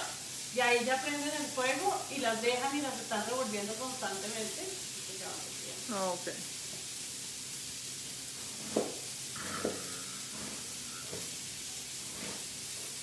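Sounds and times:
patties sizzling on a griddle: 0:00.0 - 0:13.0
knife slicing onion: 0:08.5 - 0:09.1.

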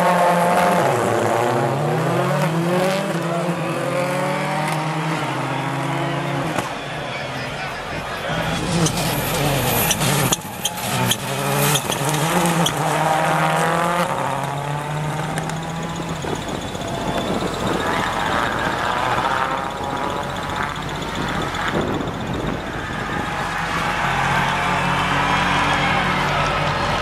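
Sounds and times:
rally car engine revving: 0:00.0 - 0:27.0
second rally car engine: 0:00.0 - 0:27.0.

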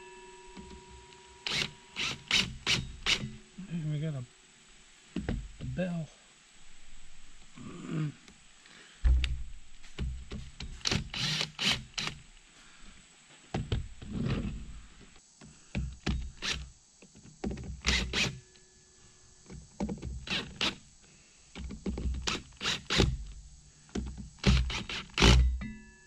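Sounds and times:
heavy thump on boat deck: 0:09.0 - 0:09.6.

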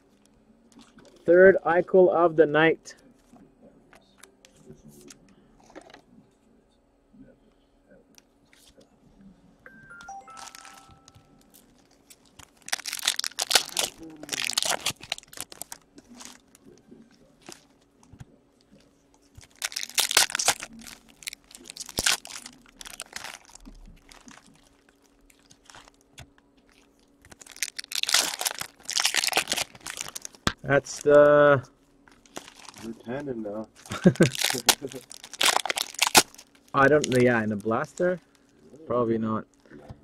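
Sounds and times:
plastic wrappers crinkling and tearing: 0:10.1 - 0:31.3, 0:32.1 - 0:38.6.

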